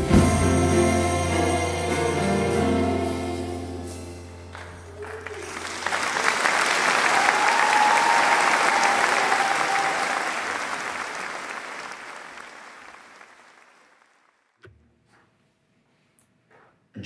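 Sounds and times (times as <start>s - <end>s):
audience applauding: 4.5s - 14.4s.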